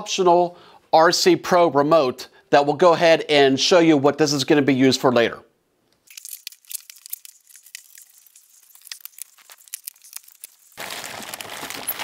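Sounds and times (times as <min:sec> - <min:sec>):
plastic strap crinkling: 0:06.0 - 0:12.0
cardboard and plastic rustling: 0:07.1 - 0:12.0.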